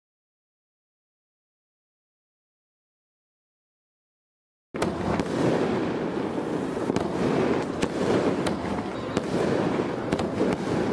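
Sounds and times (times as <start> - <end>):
fireworks crackling: 4.8 - 10.9
fireworks cracks: 4.8 - 10.9.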